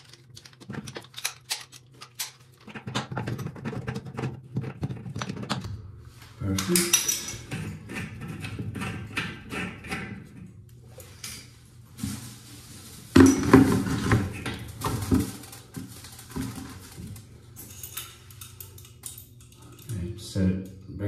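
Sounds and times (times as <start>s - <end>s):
metallic clinks and knocks of fittings: 17.6s - 20.0s.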